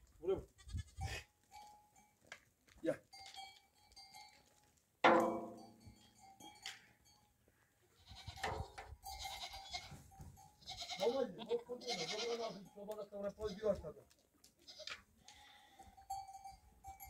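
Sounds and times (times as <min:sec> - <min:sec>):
sheep and goats bleating: 0:00.4 - 0:01.3, 0:07.9 - 0:13.8, 0:14.4 - 0:16.1.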